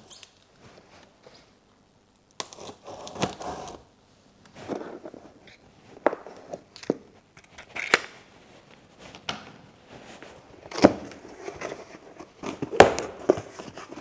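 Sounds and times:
cardboard scraping and rustling: 10.0s - 14.0s.

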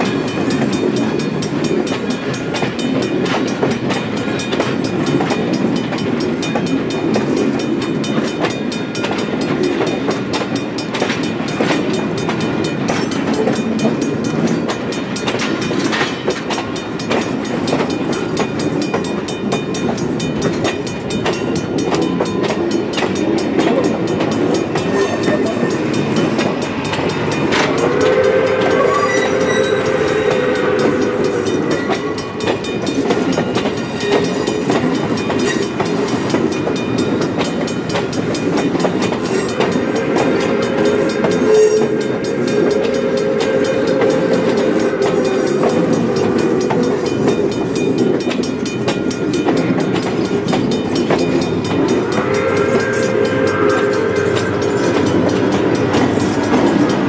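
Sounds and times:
train wheels clicking over rail joints: 0.0s - 57.0s
train horn chord: 27.5s - 32.4s, 39.3s - 47.2s, 51.8s - 57.0s.

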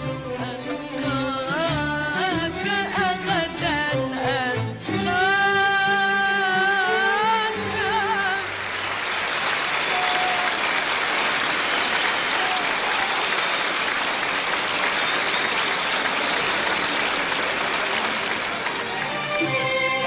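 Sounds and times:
audience applauding: 7.8s - 20.0s.

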